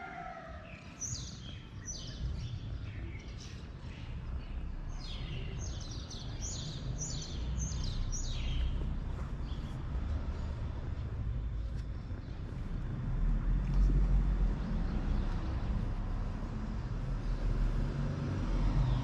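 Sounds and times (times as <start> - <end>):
small birds chirping: 0.5 - 13.0
steady low rumble: 0.7 - 19.0.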